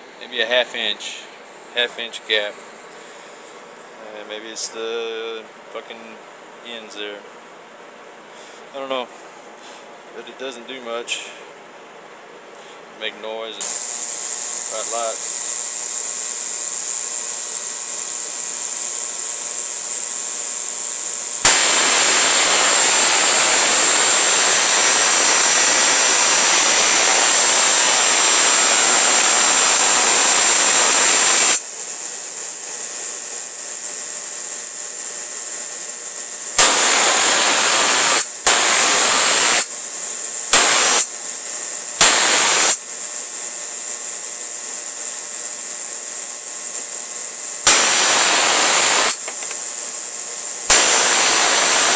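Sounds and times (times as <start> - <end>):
steady low hum: 0.0 - 31.0
electric spark arcing: 13.6 - 51.9.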